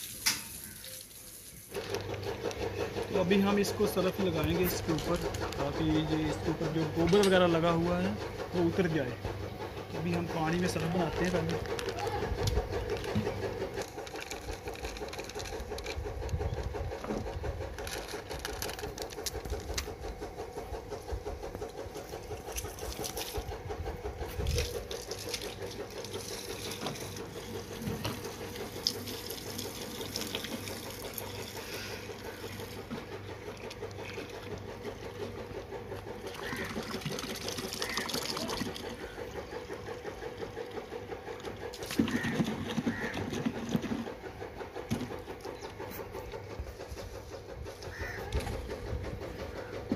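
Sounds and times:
pulsing mechanical hum: 1.6 - 49.9
water pouring into plastic bucket: 24.5 - 32.8, 36.3 - 39.0.

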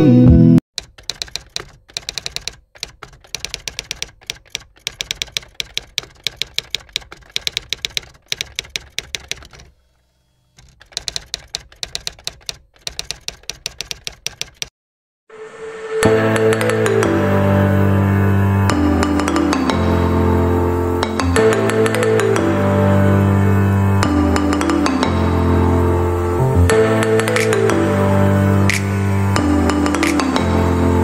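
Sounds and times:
music: 0.0 - 0.6, 15.3 - 31.0
typewriter keystrokes clacking: 0.8 - 9.7, 10.6 - 14.7.

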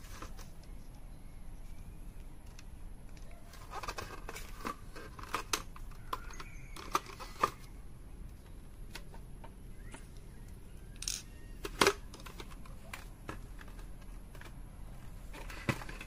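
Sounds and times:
plastic gears clicking and tapping: 2.5 - 7.6.

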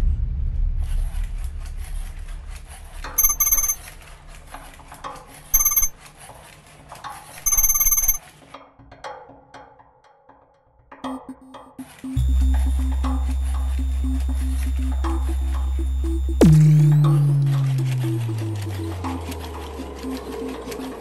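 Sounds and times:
trilling electronic beeps: 3.2 - 3.8, 5.6 - 5.9, 7.4 - 8.2, 12.0 - 21.0
low music drone: 12.2 - 21.0.

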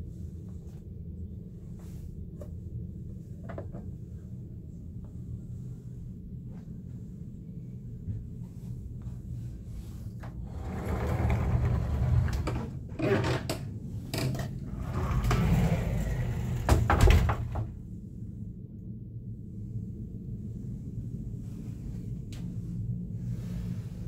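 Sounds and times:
sliding doors scraping on track: 10.2 - 13.5, 14.7 - 17.6.

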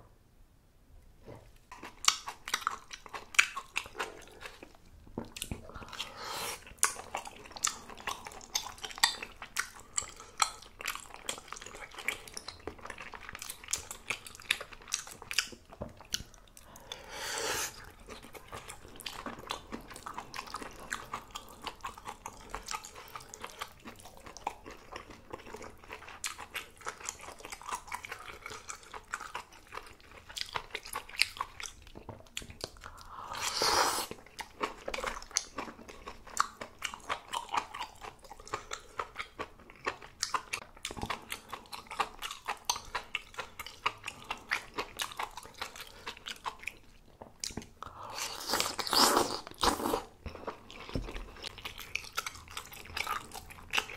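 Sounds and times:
chewing and biting: 1.6 - 16.6, 17.7 - 53.9.

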